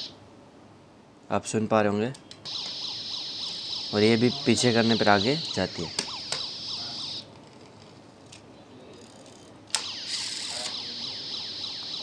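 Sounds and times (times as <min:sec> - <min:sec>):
toy electronic siren: 0:02.5 - 0:07.3, 0:09.8 - 0:12.0.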